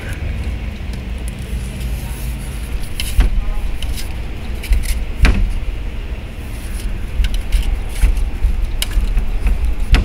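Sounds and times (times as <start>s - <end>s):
wind and rain rumbling: 0.0s - 10.0s.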